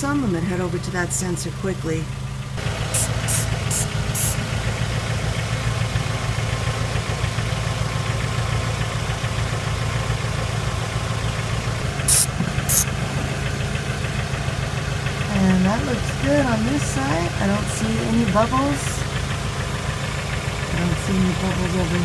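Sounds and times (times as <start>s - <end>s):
car engine idling: 0.0s - 22.0s
spray bottle squirting: 3.0s - 4.4s, 12.1s - 12.9s.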